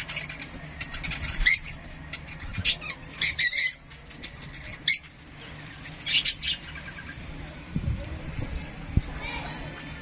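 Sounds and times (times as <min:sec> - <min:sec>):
parrot chick squawking: 0:00.0 - 0:05.3.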